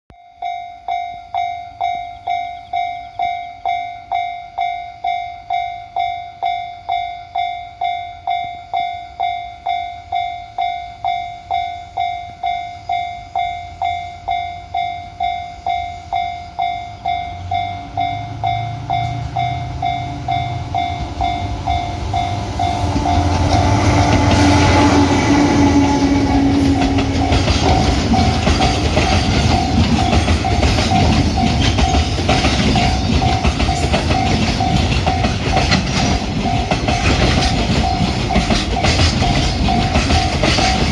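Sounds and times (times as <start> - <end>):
level crossing bell ringing: 0.1 - 40.9
diesel locomotive engine rumble: 11.4 - 40.9
freight wagons clattering on rails: 17.4 - 40.9.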